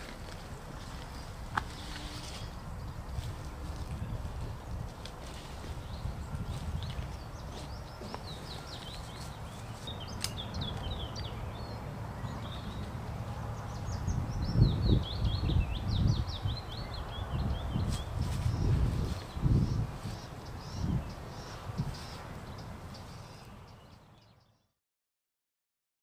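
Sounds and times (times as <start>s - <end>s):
low thumps and rustling in leaves: 0.0s - 11.0s, 17.5s - 22.5s
songbird singing rapid chirps: 0.0s - 24.8s.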